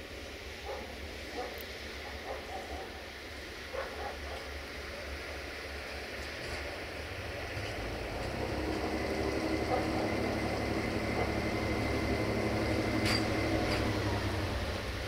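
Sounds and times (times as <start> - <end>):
train engine humming: 0.0 - 15.0.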